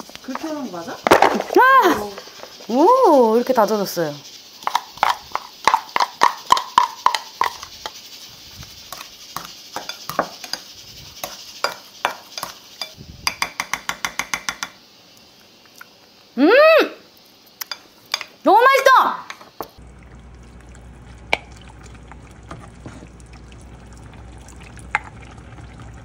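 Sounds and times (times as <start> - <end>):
utensils clinking against glass bowls: 8.9 - 14.6.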